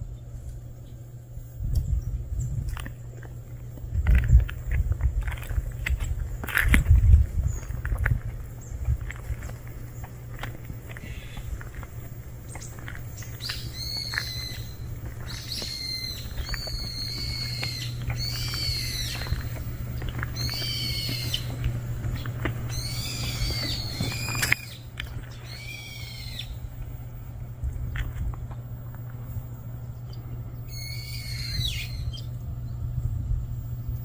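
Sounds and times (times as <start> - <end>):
animal high-pitched cries: 13.5 - 19.5, 20.4 - 21.6, 22.7 - 24.8, 25.4 - 26.6, 30.7 - 32.2.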